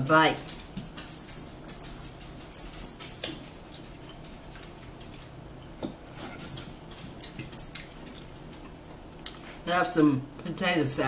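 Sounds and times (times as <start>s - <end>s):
person chewing: 3.4s - 9.5s.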